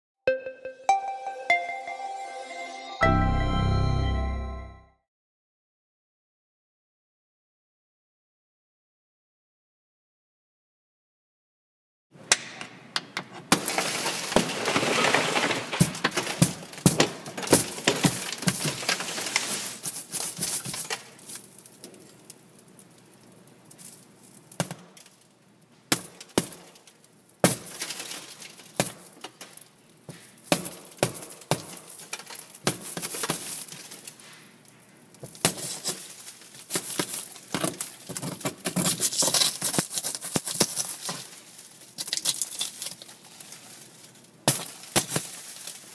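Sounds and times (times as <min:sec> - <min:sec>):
glass window shattering: 0:13.5 - 0:19.4.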